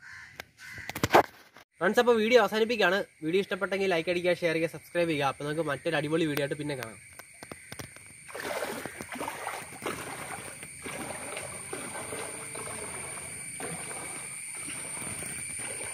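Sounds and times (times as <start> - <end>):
feet wading through water: 8.2 - 15.9.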